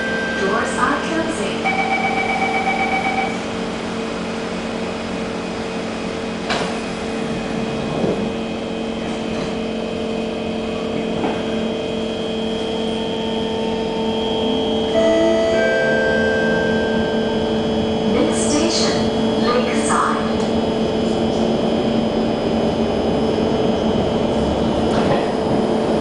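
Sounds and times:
electrical and air conditioning hum: 0.0s - 26.0s
traction motor whine: 12.3s - 26.0s.

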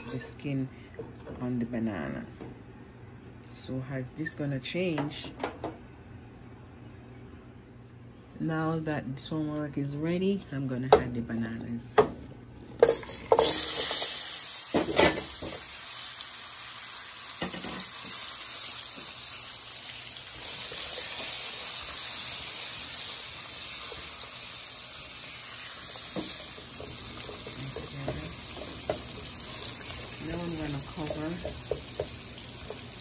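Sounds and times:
food sizzling in hot oil: 12.8s - 33.0s.

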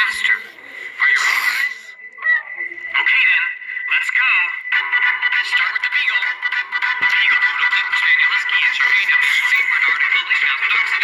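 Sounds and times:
thin background music: 1.2s - 11.0s.

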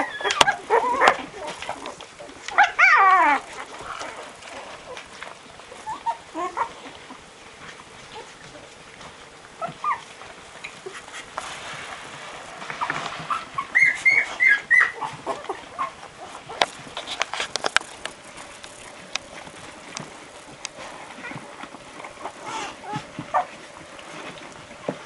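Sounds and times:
puppies squeaking and whimpering: 0.0s - 1.9s, 2.5s - 5.1s, 5.7s - 7.2s, 9.6s - 10.1s, 12.8s - 17.5s, 21.0s - 21.6s, 22.2s - 23.6s
clicks and rustling: 12.6s - 25.0s.

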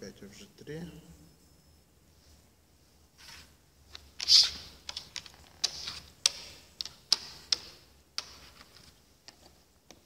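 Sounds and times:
game pieces clicking on wooden board: 4.8s - 8.6s.

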